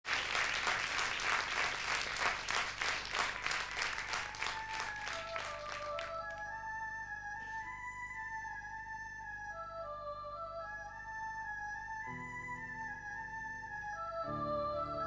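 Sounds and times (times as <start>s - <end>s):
audience applauding: 0.0s - 6.5s
slow instrumental melody: 4.6s - 15.0s.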